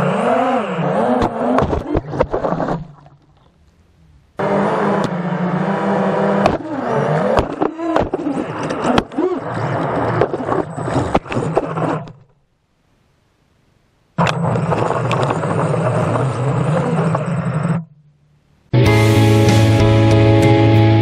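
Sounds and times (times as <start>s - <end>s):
drone motors buzzing: 0.0s - 12.4s, 14.2s - 18.0s.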